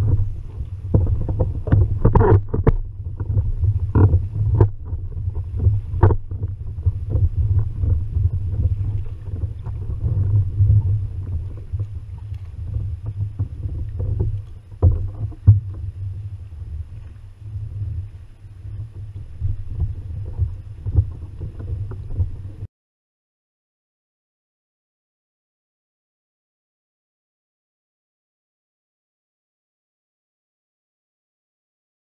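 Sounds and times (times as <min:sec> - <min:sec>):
knocks against a hull: 0:00.0 - 0:15.9
wind and water rumble: 0:00.0 - 0:22.7.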